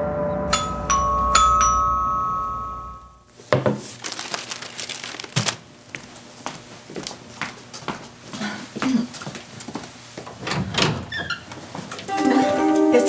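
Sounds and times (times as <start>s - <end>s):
bell-like chime notes: 0.0s - 3.3s, 12.1s - 13.0s.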